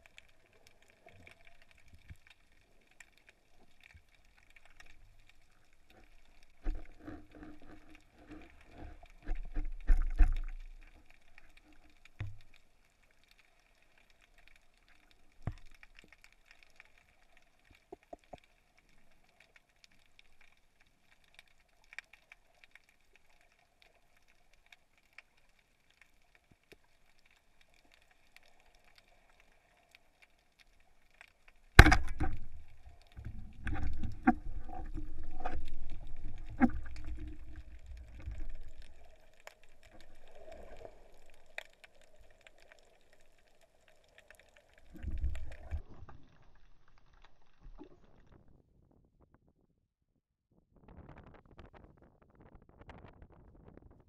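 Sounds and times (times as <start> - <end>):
underwater clicks and crackle: 0.0 - 49.6, 50.8 - 54.0
low rushing water: 31.8 - 46.2.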